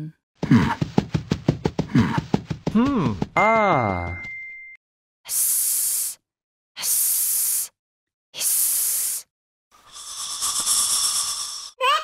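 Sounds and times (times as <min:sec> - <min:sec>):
snake-like hisses: 0:06.8 - 0:07.7, 0:08.4 - 0:11.8
rough hissing noise: 0:09.8 - 0:11.8.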